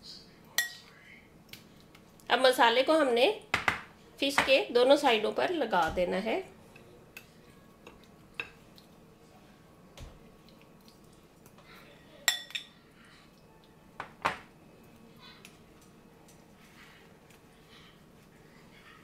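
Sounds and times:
metal spoon clinking on glass dish: 12.3s - 12.7s.

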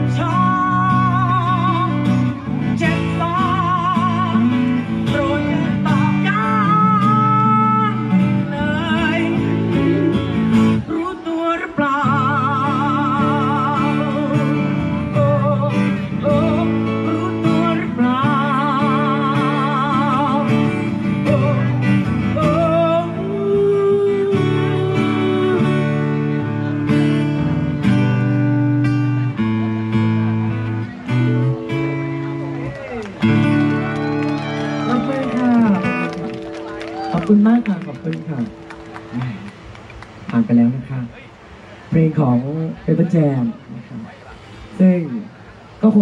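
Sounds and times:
person singing: 0.0s - 26.6s
acoustic guitars strumming: 0.0s - 41.6s.

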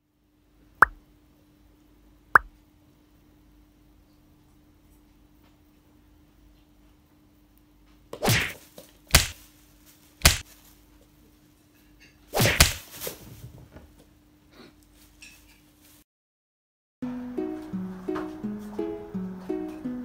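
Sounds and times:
plastic bag crackling: 9.0s - 10.8s.

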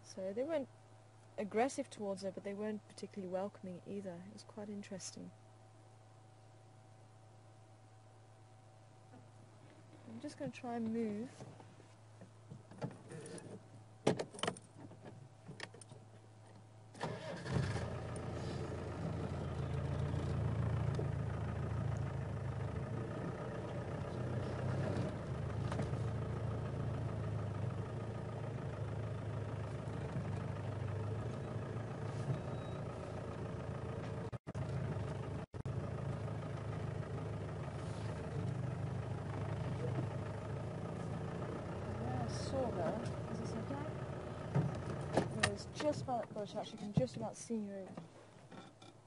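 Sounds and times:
vehicle engine starting and running: 16.9s - 47.1s.

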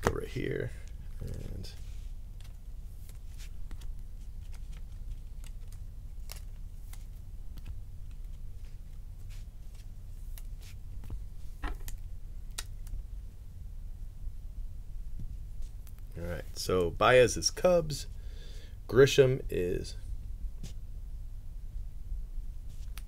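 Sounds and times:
steady low hum: 0.0s - 23.0s
trading cards clicking and rustling: 0.8s - 8.5s.

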